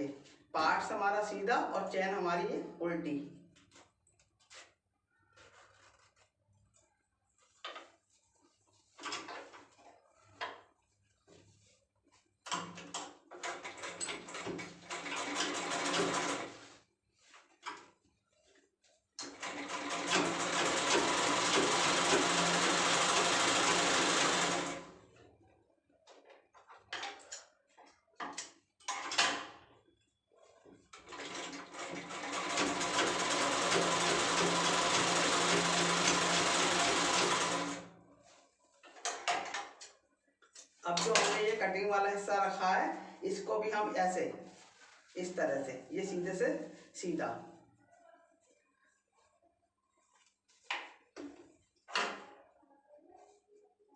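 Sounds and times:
fabric rustling: 0:03.7 - 0:12.4, 0:44.4 - 0:45.3, 0:48.2 - 0:50.7
sewing machine parts clicking: 0:12.5 - 0:16.5, 0:30.9 - 0:37.8
sewing machine stitching: 0:13.3 - 0:16.8, 0:19.2 - 0:25.0, 0:30.9 - 0:37.9
cloth rustling: 0:44.4 - 0:45.2.

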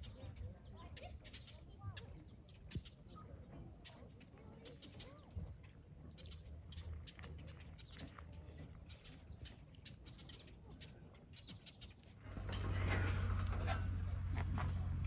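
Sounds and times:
small birds chirping: 0:00.0 - 0:15.0
low background rumble: 0:12.2 - 0:15.0.

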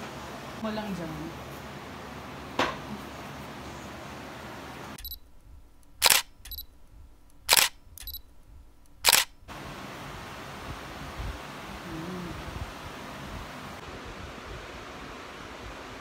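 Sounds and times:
short high beep: 0:05.0 - 0:05.2, 0:06.1 - 0:06.7
camera shutter firing: 0:06.0 - 0:06.7, 0:07.4 - 0:08.2, 0:09.0 - 0:09.5.

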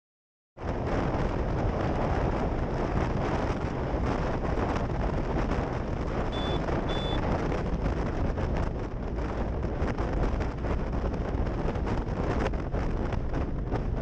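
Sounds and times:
car road and wind noise: 0:00.6 - 0:14.0
short high beeps: 0:06.3 - 0:07.2.

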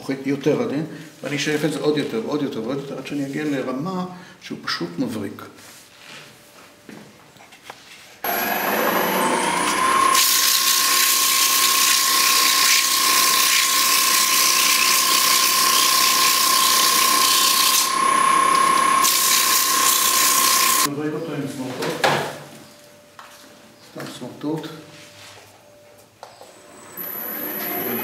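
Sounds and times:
wood lathe motor whine: 0:08.2 - 0:20.9, 0:26.6 - 0:28.0
sandpaper hissing on spinning wood: 0:10.0 - 0:20.9.

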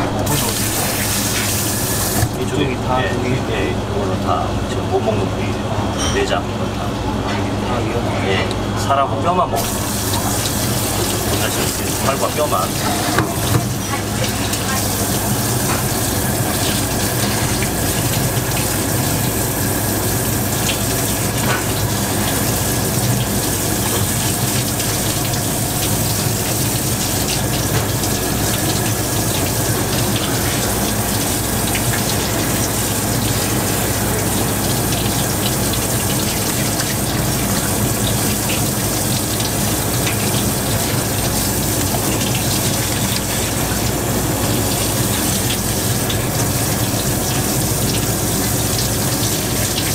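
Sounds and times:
tap water splashing: 0:02.1 - 0:02.4, 0:12.8 - 0:14.9, 0:23.0 - 0:26.6, 0:27.2 - 0:32.7.

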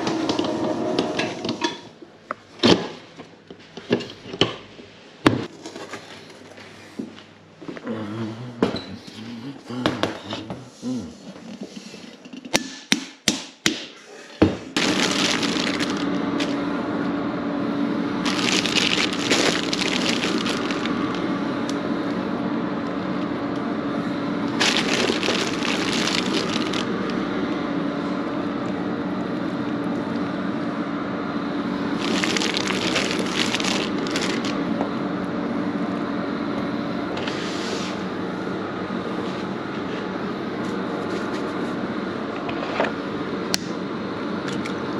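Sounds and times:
machine hum with low tone: 0:14.1 - 0:44.9
plastic bag rustling: 0:14.8 - 0:16.6, 0:18.2 - 0:21.2, 0:24.5 - 0:26.9, 0:32.0 - 0:34.7.

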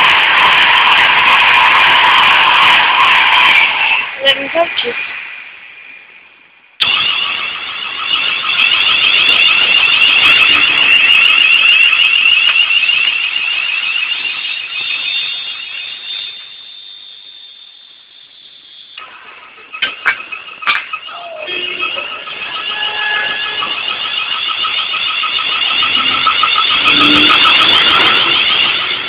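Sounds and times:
train wheels rumbling: 0:00.0 - 0:29.0
high-pitched warbling squeal: 0:06.8 - 0:29.0.

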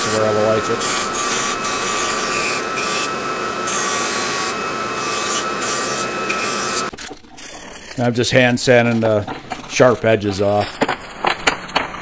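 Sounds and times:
belt sander whining: 0:00.0 - 0:07.0
wood scratching on sanding belt: 0:00.0 - 0:10.6.

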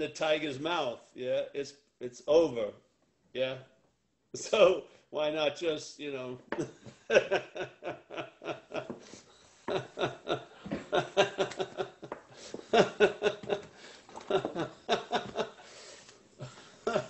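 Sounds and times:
man laughing heartily: 0:06.5 - 0:15.8, 0:16.4 - 0:17.0.

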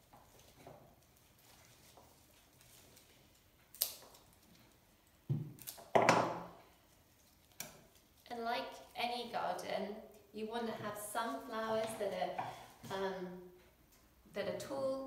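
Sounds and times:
flower stems being handled: 0:00.0 - 0:06.0.

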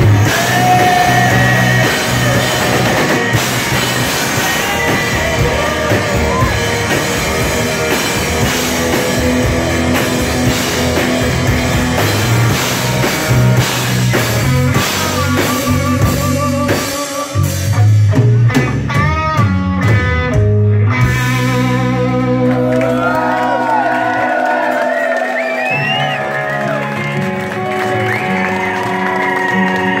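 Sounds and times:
bending lead guitar lines: 0:00.0 - 0:23.7
live rock band playing: 0:00.0 - 0:30.0.

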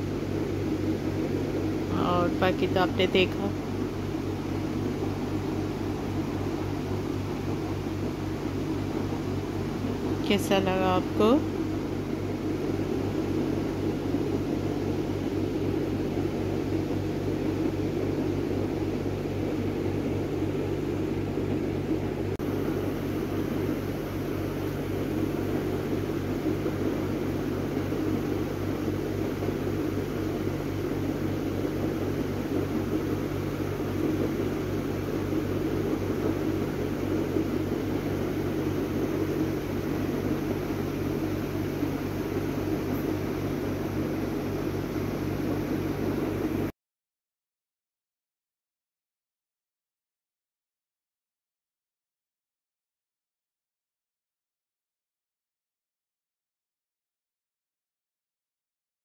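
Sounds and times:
low machine hum: 0:00.0 - 0:46.7.

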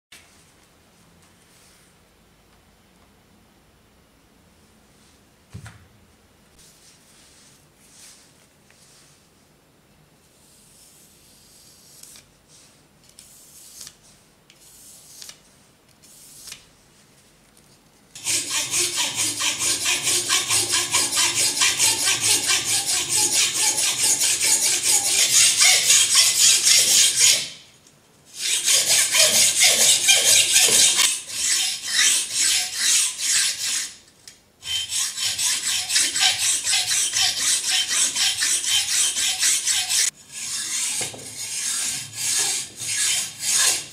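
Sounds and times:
hacksaw rasping through stone: 0:18.2 - 0:27.6, 0:28.4 - 0:33.9, 0:34.6 - 0:43.9.

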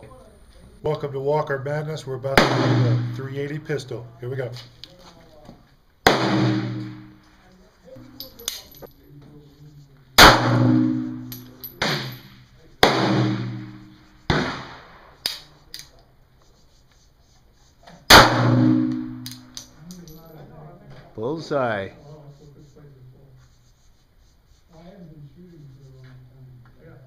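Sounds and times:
ringing echo: 0:02.3 - 0:04.5, 0:06.1 - 0:07.2, 0:10.2 - 0:14.0, 0:18.2 - 0:20.3
pistol shots: 0:02.4 - 0:03.2, 0:06.0 - 0:07.1, 0:10.2 - 0:15.5, 0:18.1 - 0:19.6.

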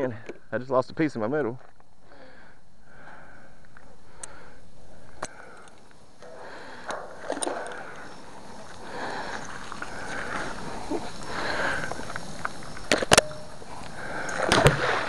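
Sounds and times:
sharp clicks: 0:05.1 - 0:08.0.

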